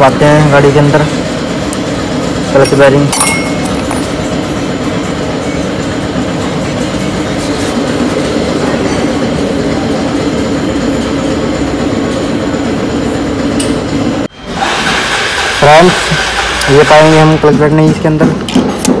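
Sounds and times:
mechanical drone with low hum: 0.0s - 19.0s.

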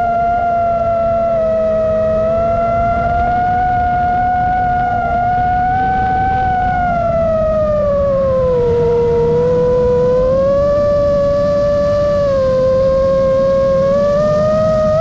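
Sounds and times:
drone motors whining: 0.0s - 15.0s
propeller and wind noise: 0.0s - 15.0s.

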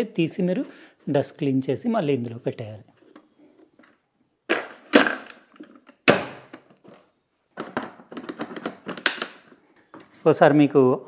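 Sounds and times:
plastic knocks and clunks: 7.6s - 10.1s.

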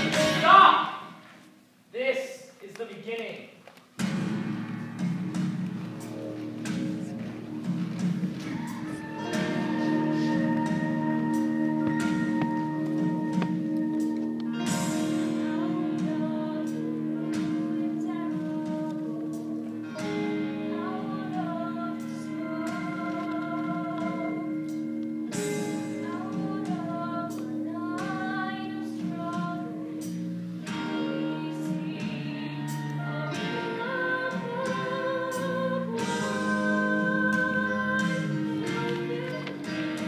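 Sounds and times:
held accompaniment chords: 4.0s - 40.0s
woman singing with vibrato: 8.6s - 13.4s, 14.6s - 30.1s, 30.7s - 40.0s.

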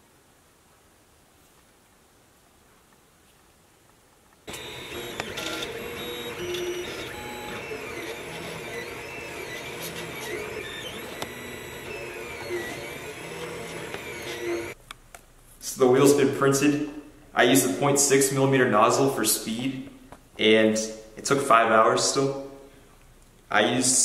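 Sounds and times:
three d printer stepper motors whining: 4.5s - 14.8s.

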